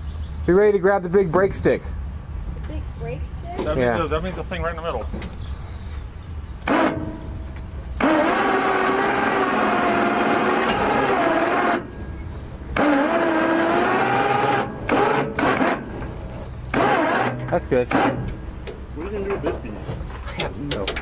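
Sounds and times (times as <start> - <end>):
wavering mechanical squeal: 6.6 - 18.5
knocks and clatters: 16.7 - 21.0.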